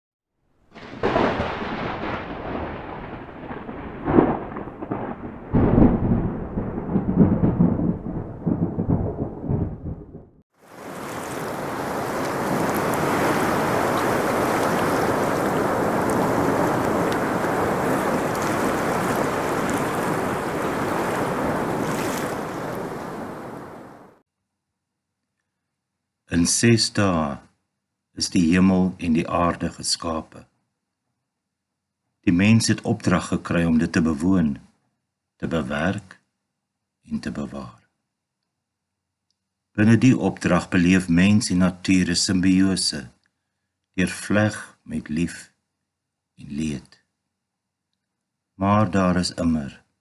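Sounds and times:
heavy rain: 0.8 - 9.0, 10.6 - 24.2
thunder rumbling: 0.8 - 24.2.

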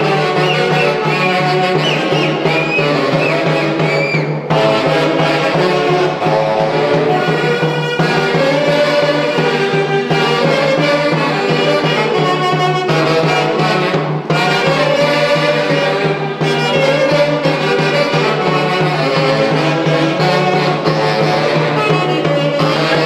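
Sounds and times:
drum: 0.0 - 23.0
saxophones: 0.0 - 23.0
violin melody: 0.0 - 23.0.

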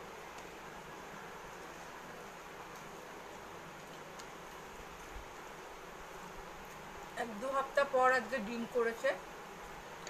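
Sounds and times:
low background hiss: 0.0 - 10.0
fingers mixing rice tick: 0.2 - 0.6, 3.7 - 5.1.

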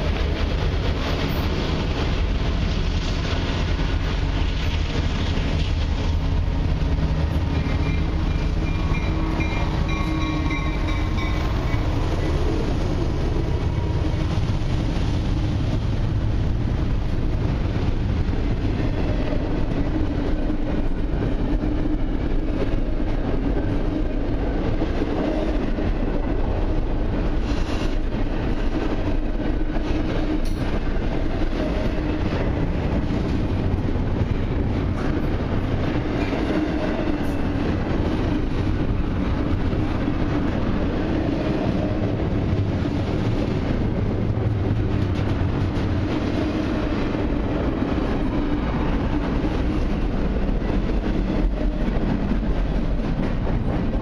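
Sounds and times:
diesel locomotives rumbling: 0.0 - 54.0.

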